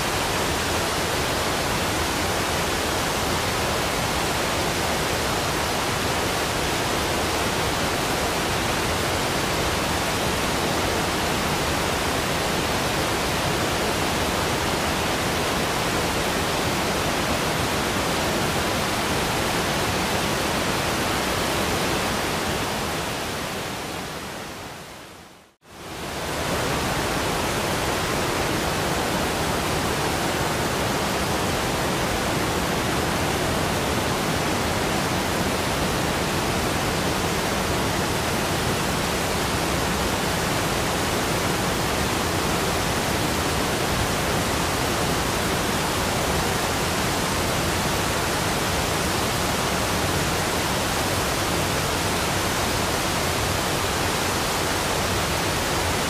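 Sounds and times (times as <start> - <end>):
steady rushing white noise: 0.0 - 56.0.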